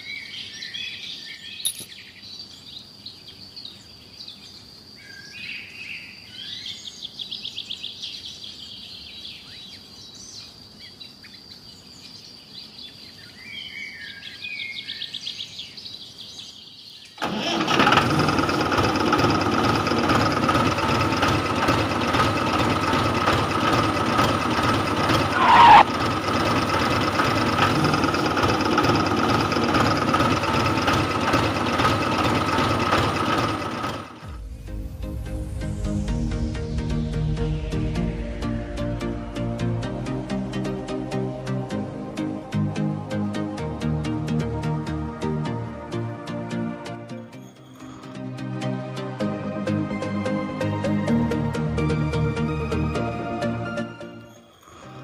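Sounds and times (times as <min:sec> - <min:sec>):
birds chirping and trilling: 0:00.0 - 0:17.2, 0:47.1 - 0:48.8, 0:53.9 - 0:55.0
steady high-pitched tone: 0:34.3 - 0:41.0.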